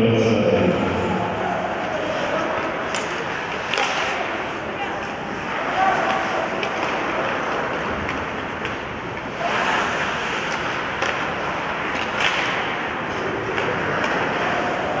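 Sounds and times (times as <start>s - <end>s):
skates scraping on ice: 1.9s - 15.0s
sticks striking puck: 2.8s - 4.3s, 6.0s - 14.5s.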